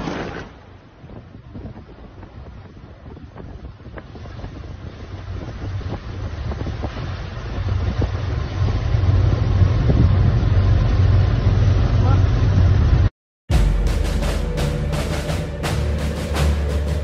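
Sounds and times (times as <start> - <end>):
wind buffeting microphone: 0.0 - 11.5
low rumble: 0.0 - 17.0.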